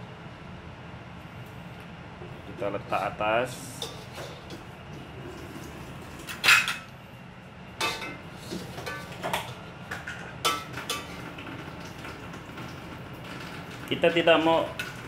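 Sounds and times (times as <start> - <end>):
metal kitchenware clinking: 7.8 - 9.5.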